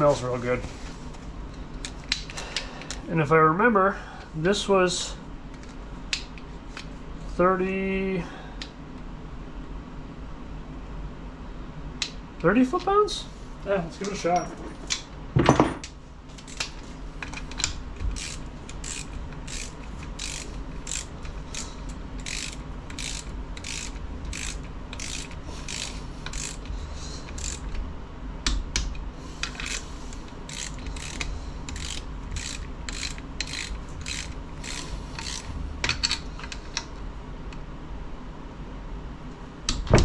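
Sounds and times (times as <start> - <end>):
ratchet wrench clicking: 17.3 - 27.8, 29.4 - 29.9, 30.5 - 36.2.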